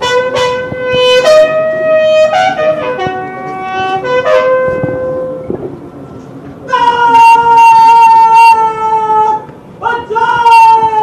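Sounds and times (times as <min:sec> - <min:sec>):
bugle playing slow call: 0:00.0 - 0:05.5.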